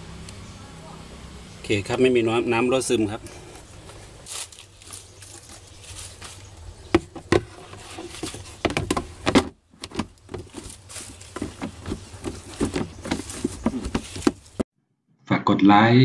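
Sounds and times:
hard plastic cover knocking: 0:06.9 - 0:14.6.

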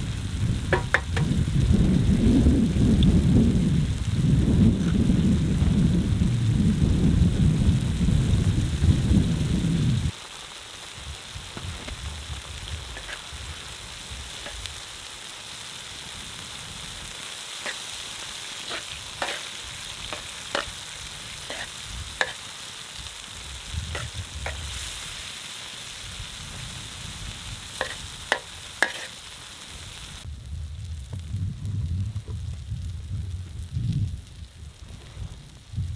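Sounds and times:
food sizzling in a wok: 0:00.0 - 0:35.9
metal spatula scraping a pan: 0:13.0 - 0:13.3, 0:17.6 - 0:22.5, 0:23.9 - 0:25.0, 0:27.8 - 0:29.2.

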